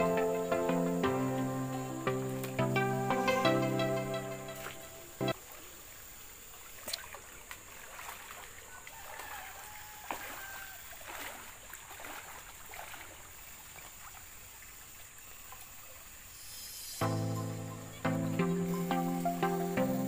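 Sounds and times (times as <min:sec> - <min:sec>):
water splashes: 0:04.2 - 0:16.5
stream water sloshing around legs: 0:04.5 - 0:16.4.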